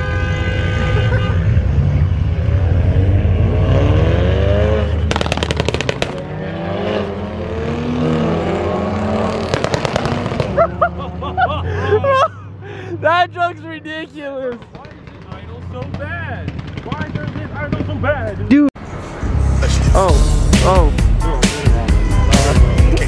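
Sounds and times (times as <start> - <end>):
vehicle engine revving: 1.5 - 10.8
exhaust pops and crackles: 5.1 - 6.3, 9.4 - 10.6, 14.4 - 18.5.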